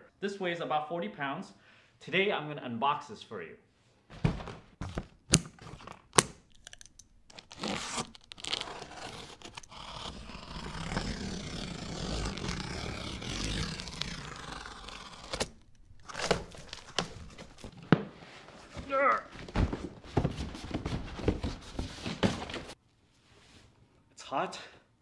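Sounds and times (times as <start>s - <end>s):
scissors snipping plastic straps: 5.3s - 10.3s
blade slicing packing tape: 5.3s - 17.7s.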